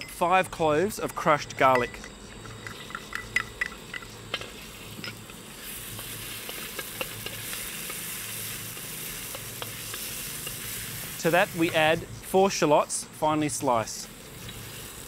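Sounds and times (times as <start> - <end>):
spatula scraping a wok: 2.0 - 12.6, 14.0 - 15.0
garlic sizzling in oil: 2.6 - 12.6, 13.9 - 15.0.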